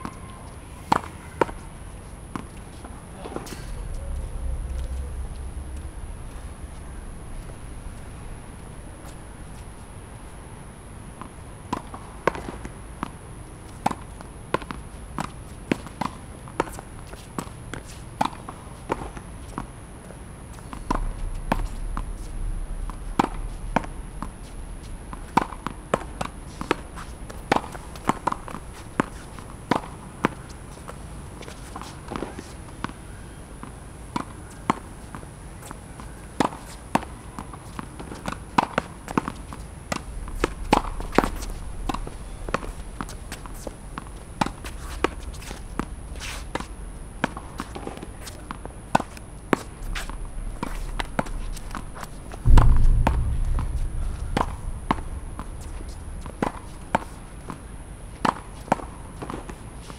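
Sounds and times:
racket hitting tennis ball: 36.4 - 59.5
ball rebounding off wall: 52.4 - 57.6
ball bouncing on court: 52.5 - 57.6.

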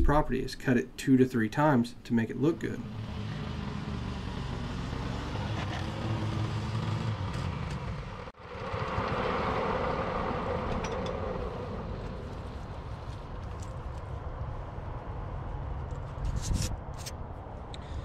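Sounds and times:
lawn mower engine running: 2.8 - 13.4.

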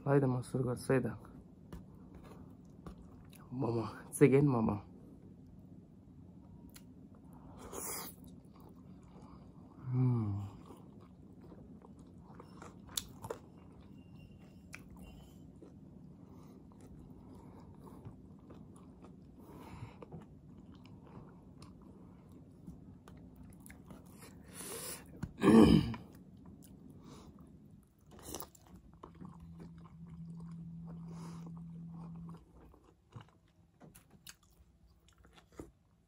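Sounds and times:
person chewing: 7.6 - 13.9, 14.6 - 36.0.

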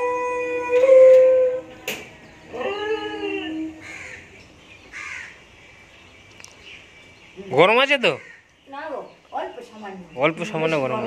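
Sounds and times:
animal whining cry: 0.0 - 4.2.

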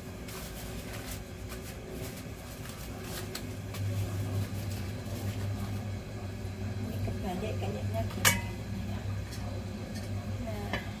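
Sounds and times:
paper towel crinkling: 0.0 - 6.0
kitchen appliance humming: 0.0 - 11.0.

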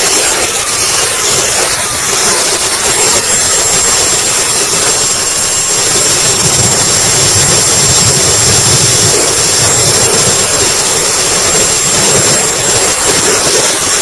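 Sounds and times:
jet engine high whine: 0.0 - 14.0
wind rush: 0.0 - 14.0
deep rumble: 5.7 - 12.6.

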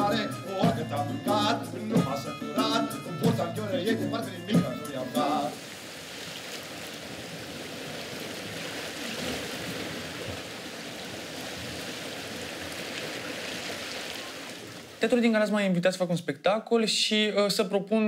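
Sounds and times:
sea water washing against concrete: 5.6 - 15.0.

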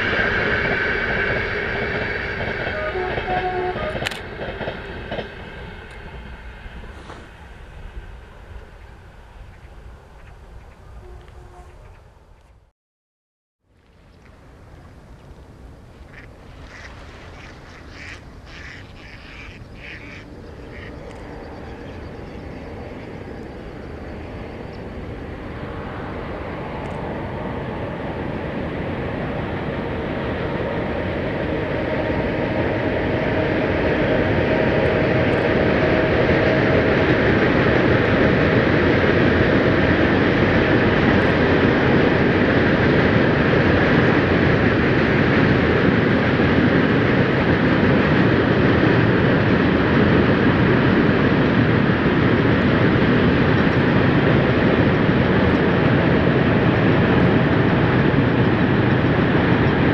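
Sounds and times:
freight train rumbling past: 0.0 - 12.4, 13.9 - 59.9
waterfowl calls: 16.1 - 22.0.

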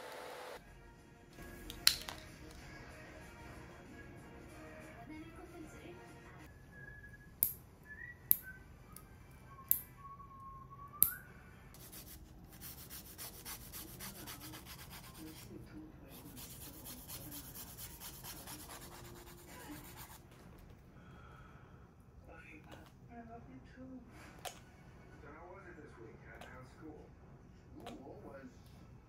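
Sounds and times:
nail clipper snipping: 1.7 - 2.2, 7.4 - 7.6, 9.7 - 9.9, 11.0 - 11.2
nail file rasping: 11.8 - 15.4.

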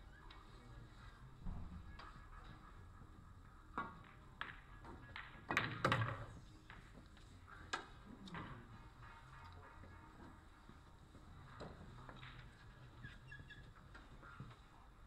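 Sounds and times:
pool balls clacking: 4.0 - 6.3.

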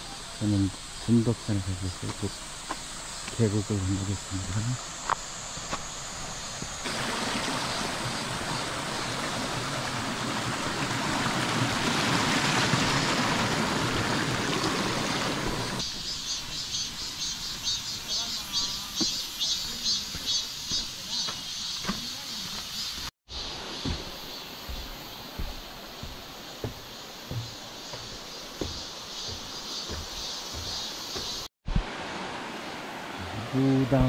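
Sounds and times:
insects calling in pulses: 0.0 - 6.9, 15.7 - 31.5
stream rushing over rocks: 4.8 - 15.8, 23.4 - 34.0.

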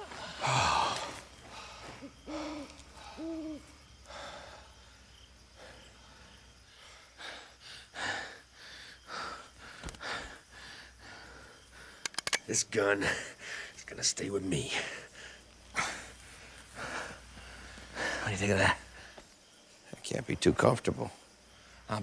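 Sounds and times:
owl hooting: 2.2 - 3.8.

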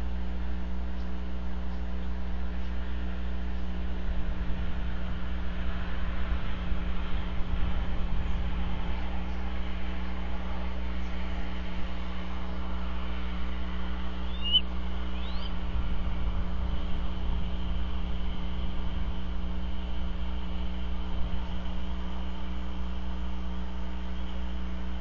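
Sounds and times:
steady low hum: 0.0 - 25.0
rising bird chirps: 14.2 - 15.6.

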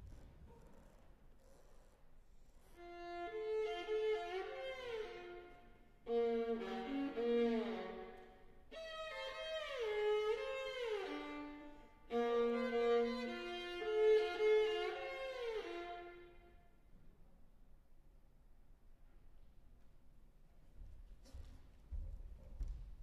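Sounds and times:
violin bowing sustained notes: 2.8 - 16.6.

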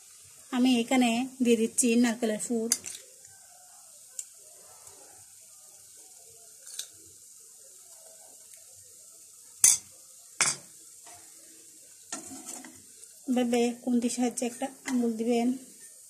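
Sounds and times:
crepe sizzling in frying pan: 0.0 - 16.0.

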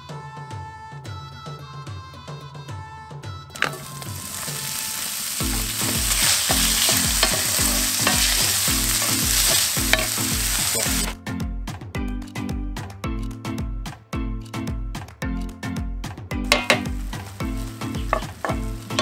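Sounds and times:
bacon clattering into skillet: 3.6 - 11.2, 16.5 - 19.0
bacon sizzling in oil: 3.6 - 11.2, 16.5 - 19.0
wooden spoon stirring: 3.6 - 11.2, 16.5 - 19.0.

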